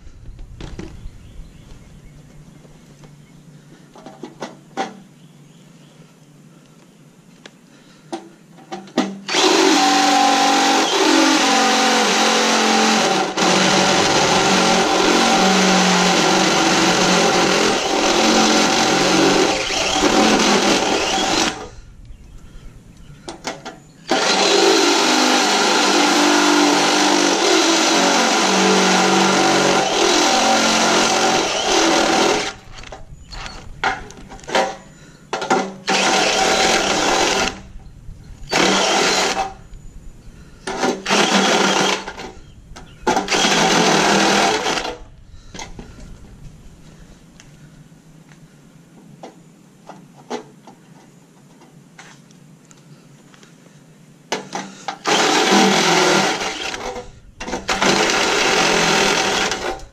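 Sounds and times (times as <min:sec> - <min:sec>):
cordless drill drilling into panel: 0:09.3 - 0:21.7, 0:24.1 - 0:33.6, 0:35.9 - 0:37.6, 0:38.5 - 0:39.6, 0:40.7 - 0:42.3, 0:43.1 - 0:45.0, 0:55.0 - 0:59.9.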